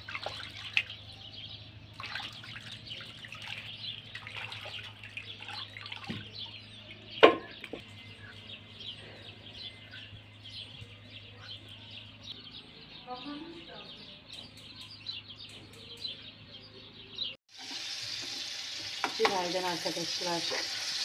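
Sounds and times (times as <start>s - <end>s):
water splashing in metal basin: 0.0s - 1.2s, 1.9s - 6.4s
small birds chirping: 0.0s - 21.0s
knock on metal pot: 7.2s - 7.6s.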